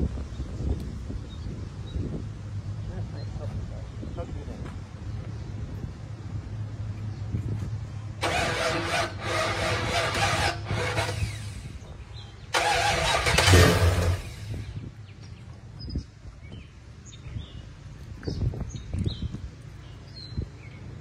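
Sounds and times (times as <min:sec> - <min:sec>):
car engine firing: 0:08.2 - 0:11.8, 0:12.5 - 0:14.7
starter motor cranking: 0:08.2 - 0:11.8, 0:12.5 - 0:14.7.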